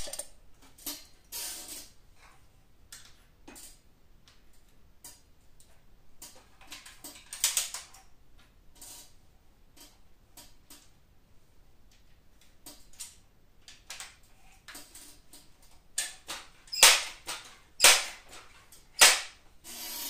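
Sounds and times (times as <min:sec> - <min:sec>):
loud sharp clacks: 0:16.3 - 0:18.4, 0:19.0 - 0:19.4.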